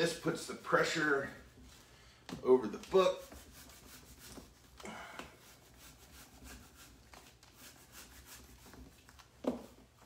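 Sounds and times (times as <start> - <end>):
hands rubbing paper: 2.5 - 9.3.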